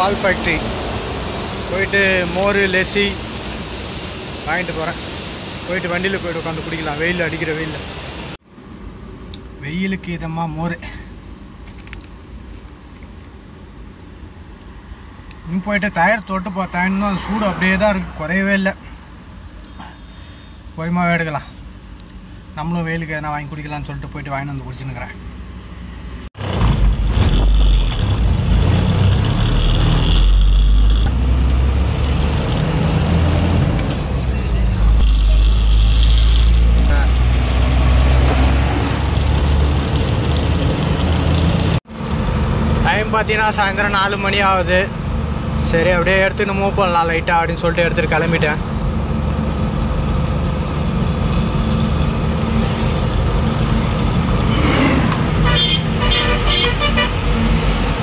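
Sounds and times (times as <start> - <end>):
road and wind hiss: 0.0 - 58.0
lorry diesel engine rumble: 26.4 - 58.0.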